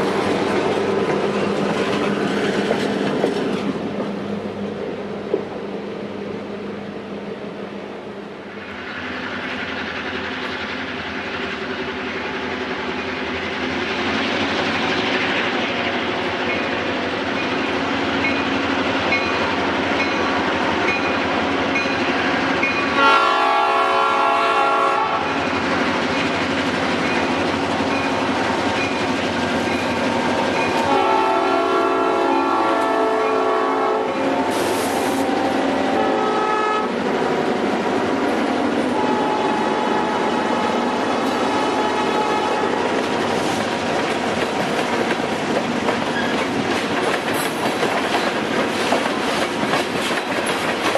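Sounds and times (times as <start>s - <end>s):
diesel locomotive engine: 0.0s - 50.9s
rail noise: 0.0s - 50.9s
train horn blast: 22.9s - 25.4s, 30.8s - 37.0s, 38.9s - 42.8s.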